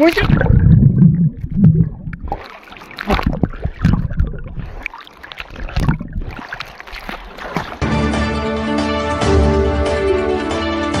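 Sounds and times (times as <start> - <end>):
low thumps: 0.0 - 2.4
sea water sloshing and splashing: 0.0 - 8.2.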